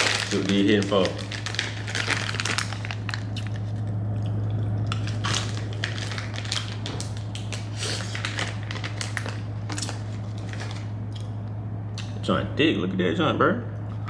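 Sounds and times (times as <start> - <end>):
plastic bag crinkling: 0.0 - 4.0, 4.9 - 11.0
low hum: 0.0 - 14.0.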